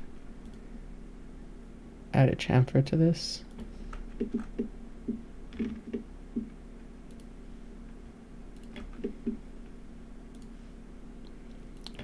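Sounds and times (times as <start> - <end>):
computer mouse clicking: 7.1 - 7.3, 8.6 - 9.4, 10.3 - 10.5.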